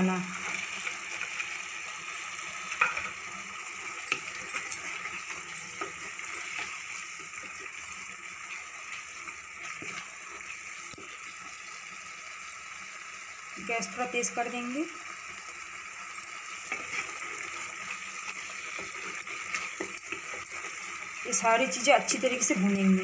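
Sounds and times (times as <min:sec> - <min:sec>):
curry sizzling: 0:00.0 - 0:23.0
wooden spatula scraping pot: 0:03.8 - 0:07.9, 0:08.5 - 0:11.1, 0:16.5 - 0:21.2.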